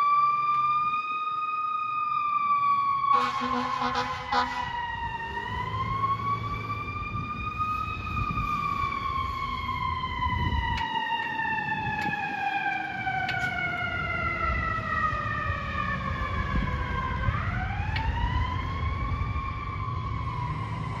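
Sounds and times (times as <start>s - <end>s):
fire engine siren wailing: 0.0s - 21.0s.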